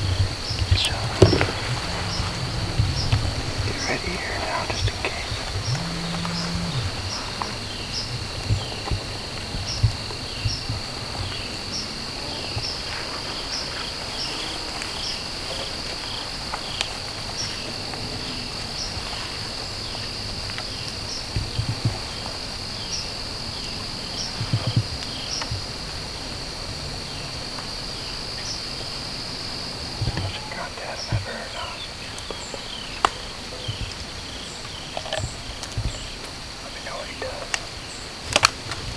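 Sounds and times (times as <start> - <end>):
soft low thumps: 0.0 - 13.3, 21.3 - 22.4, 24.3 - 25.8
insect chirp: 0.0 - 38.9
insects trilling: 0.0 - 38.9.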